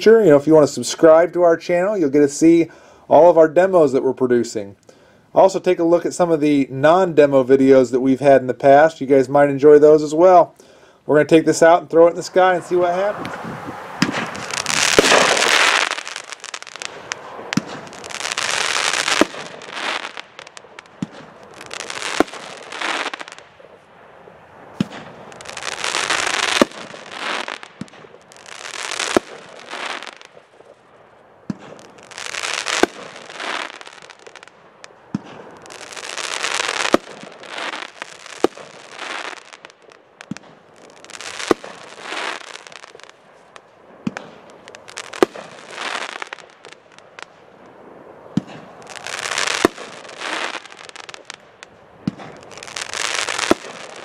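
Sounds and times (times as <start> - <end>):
crackling firework bursts: 8.6 - 54.0
firework launch pops: 12.4 - 23.7, 24.7 - 28.2, 29.0 - 30.8, 31.5 - 40.6, 41.2 - 54.0.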